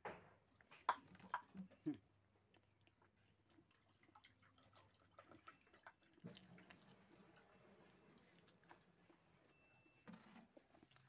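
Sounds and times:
chewing: 0:00.5 - 0:09.2, 0:10.6 - 0:11.0.

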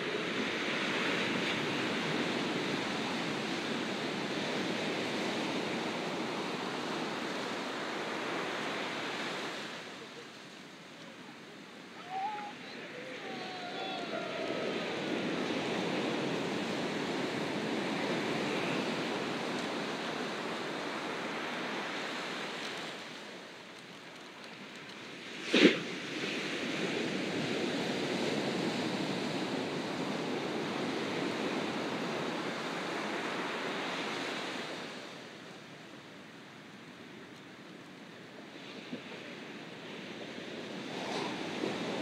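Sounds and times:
ocean surf washing onto beach: 0:00.0 - 0:42.0.

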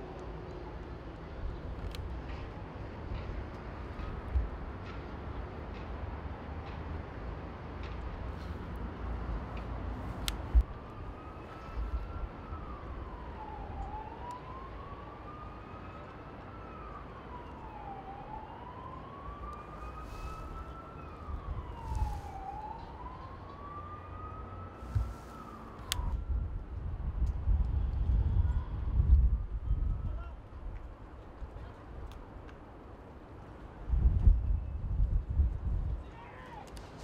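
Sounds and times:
wailing siren: 0:10.5 - 0:30.3.

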